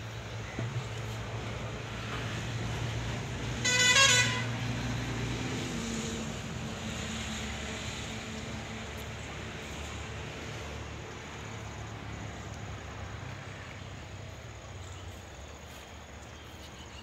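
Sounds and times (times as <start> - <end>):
vehicle horn toot: 3.6 - 4.6.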